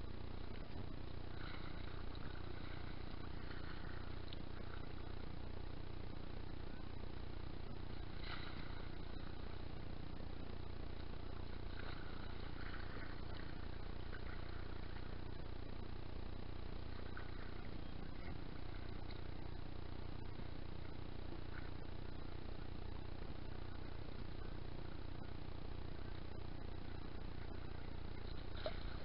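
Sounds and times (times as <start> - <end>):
low rumble and hum: 0.0 - 29.0.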